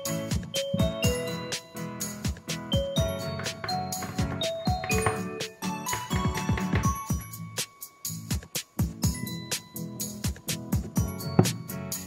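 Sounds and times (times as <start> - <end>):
bell-like melody: 0.0 - 8.3, 9.0 - 10.3, 11.0 - 12.0
kick drum beat: 0.8 - 1.2.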